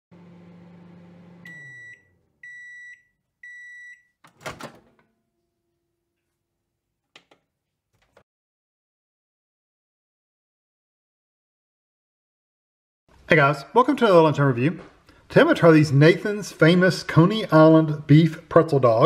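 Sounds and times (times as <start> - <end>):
microwave oven humming: 0.1 - 2.6.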